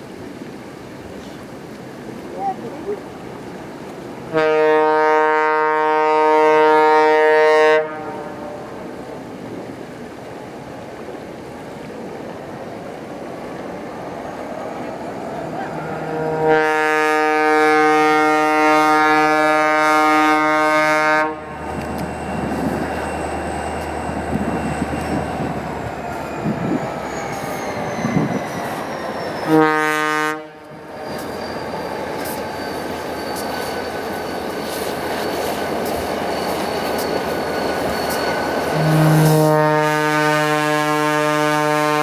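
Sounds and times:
train rumble: 0.0 - 42.0
locomotive horn blasts: 4.3 - 8.9, 15.8 - 22.9, 29.4 - 30.9, 38.7 - 42.0
high squeal falling in pitch: 20.2 - 40.2.

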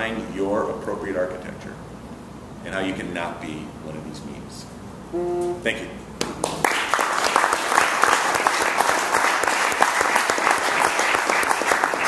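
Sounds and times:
audience applauding: 6.4 - 12.0.

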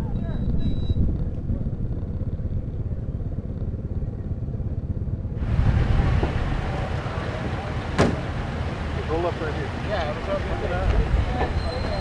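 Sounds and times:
motorcycle engine rumbling: 0.0 - 12.0
outdoor hiss: 5.4 - 12.0.

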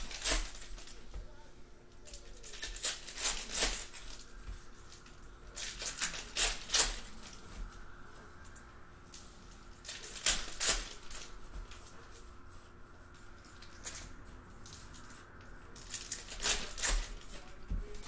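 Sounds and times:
foil wrapper crinkling and tearing: 0.0 - 1.0, 2.0 - 7.4, 9.1 - 11.3, 15.8 - 18.0.

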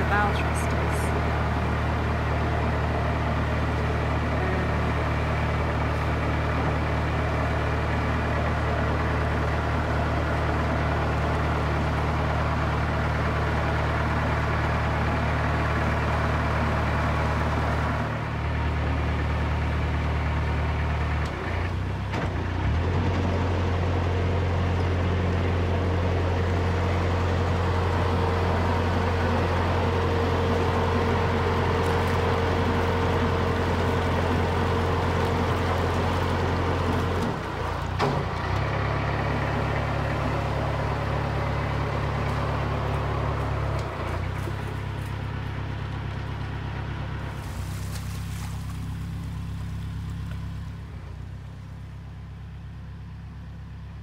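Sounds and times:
diesel engine running: 0.0 - 54.0.

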